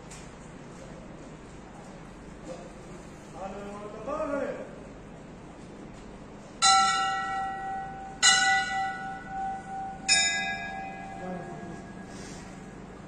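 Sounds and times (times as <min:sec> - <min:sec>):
temple bell ringing: 0:06.6 - 0:13.0.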